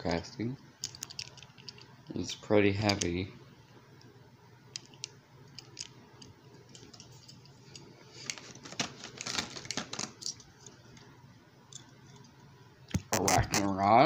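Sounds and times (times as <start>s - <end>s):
plastic packaging crinkling: 8.1s - 10.5s.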